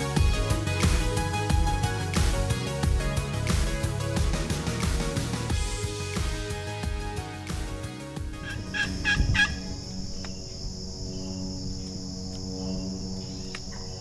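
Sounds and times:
soft background music: 0.0s - 14.0s
high insect drone: 8.2s - 14.0s
wild turkey calling: 8.4s - 10.4s.

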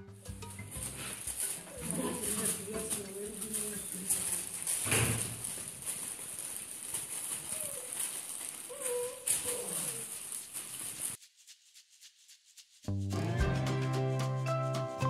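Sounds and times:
newspaper rustling and crinkling: 0.7s - 11.2s
puppy whining: 1.0s - 4.6s, 7.2s - 10.3s.

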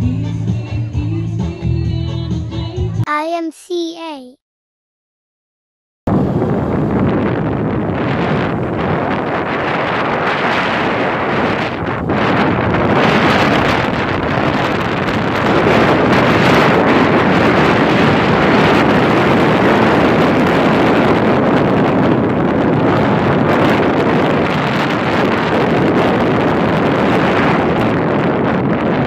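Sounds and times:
wind rushing over microphone: 6.1s - 29.0s.

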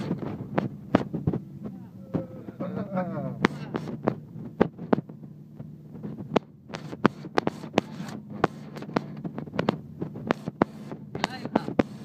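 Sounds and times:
engine and road hum: 0.0s - 12.0s
sharp knocks and clicks: 3.4s - 12.0s.

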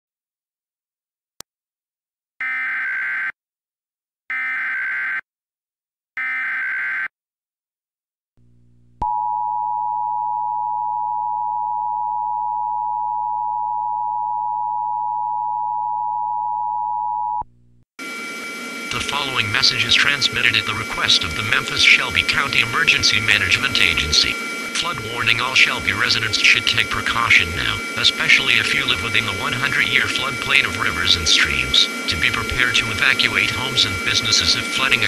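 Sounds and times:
digital header bursts: 18.0s - 35.0s.

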